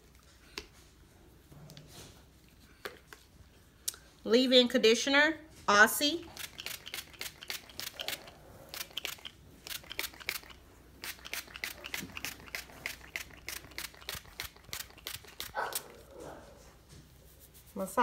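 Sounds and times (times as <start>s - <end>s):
fingers rubbing through hair: 5.7s - 18.0s
spray bottle spritzing: 6.3s - 16.0s.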